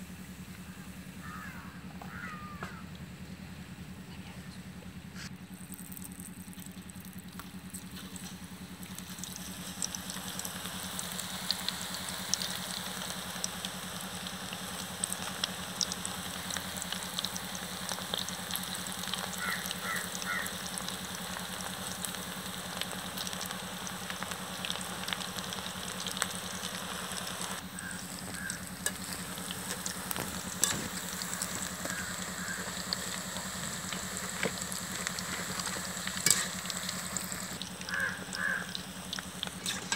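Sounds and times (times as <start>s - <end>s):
deep-frying in hot oil: 5.3s - 39.9s.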